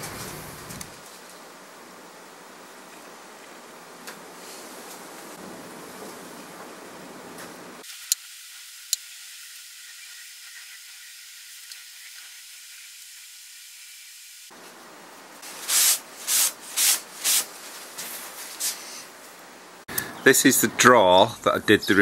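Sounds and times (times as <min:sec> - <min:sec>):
thin steady hiss: 0:00.0 - 0:22.0.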